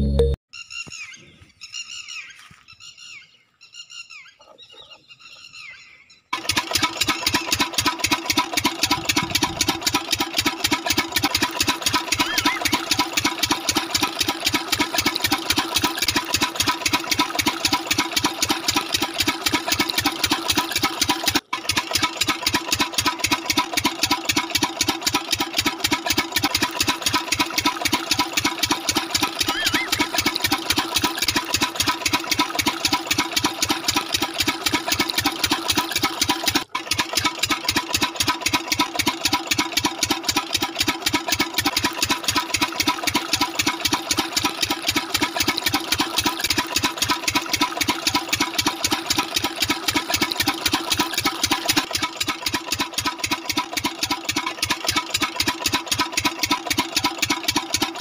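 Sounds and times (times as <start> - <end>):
music: 0.0 - 0.4
model diesel engine chugging: 6.4 - 58.0.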